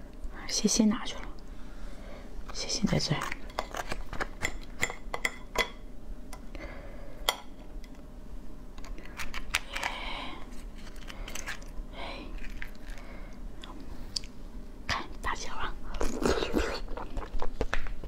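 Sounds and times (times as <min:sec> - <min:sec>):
chewing: 0:12.4 - 0:13.0
crab shell cracking: 0:12.4 - 0:13.0.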